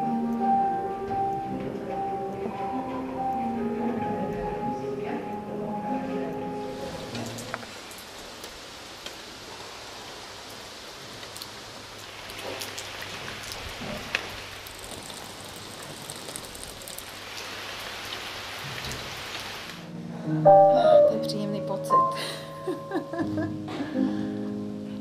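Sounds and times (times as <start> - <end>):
steady rain: 0.0 - 20.0.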